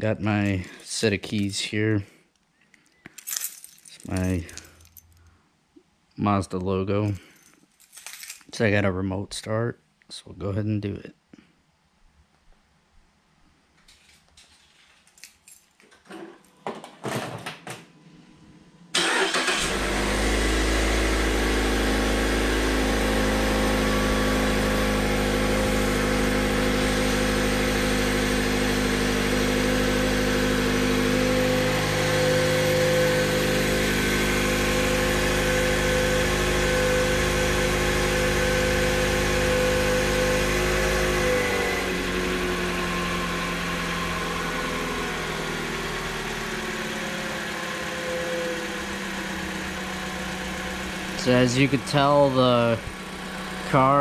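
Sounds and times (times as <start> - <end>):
car engine idling: 18.9 - 41.0, 45.2 - 54.0.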